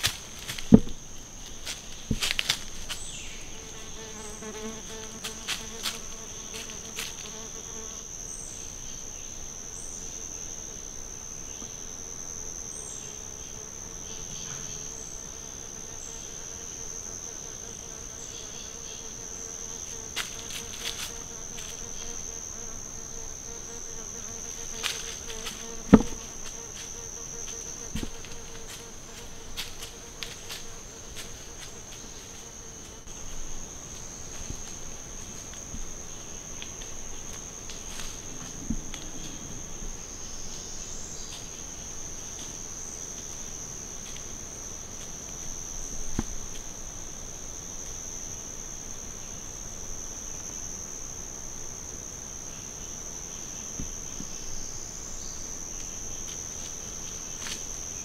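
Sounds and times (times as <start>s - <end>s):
insect chorus drone: 0.0s - 58.0s
sharp knock: 0.7s - 1.0s.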